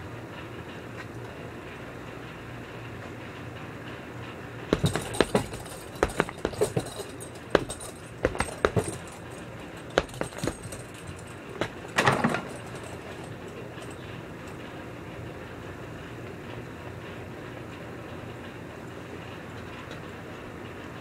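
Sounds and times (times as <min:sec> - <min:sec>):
steady low hum: 0:00.0 - 0:19.5
punches on heavy bag: 0:04.7 - 0:13.0
chain jingling: 0:04.7 - 0:14.6.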